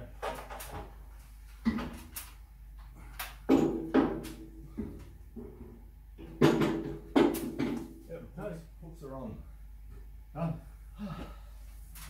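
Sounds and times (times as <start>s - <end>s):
metal clanks and knocks: 3.4s - 8.0s.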